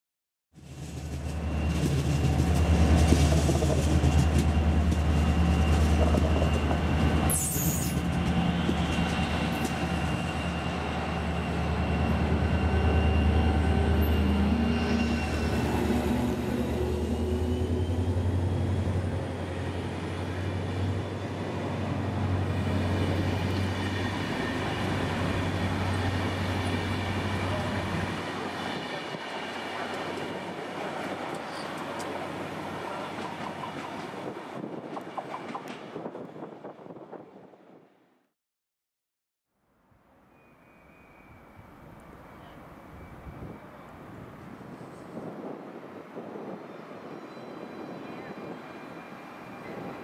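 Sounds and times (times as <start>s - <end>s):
diesel locomotive engine drone: 0.6s - 36.6s
high wheel squeal: 4.2s - 18.7s.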